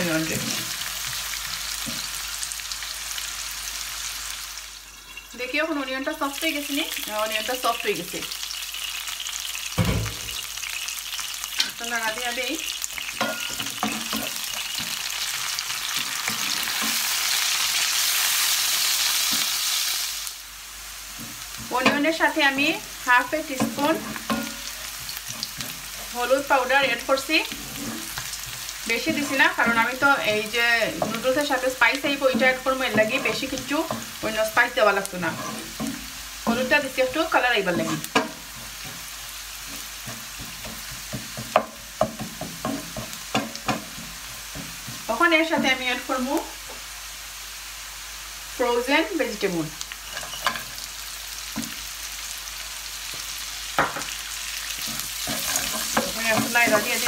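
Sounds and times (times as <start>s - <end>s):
onions sizzling in oil: 0.0s - 57.0s
wooden spoon knocking pan: 28.4s - 45.9s.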